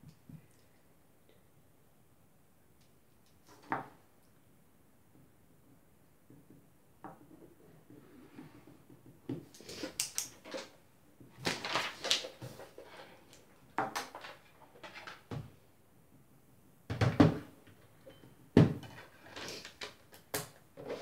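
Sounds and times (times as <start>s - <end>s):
objects rustling and knocking on table: 6.2s - 15.6s, 16.9s - 21.0s.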